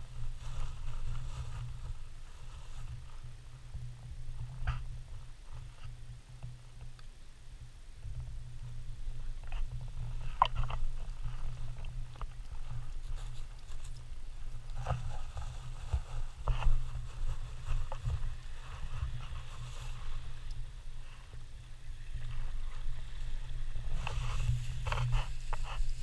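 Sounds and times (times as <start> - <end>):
wind on microphone: 7.6 - 26.0.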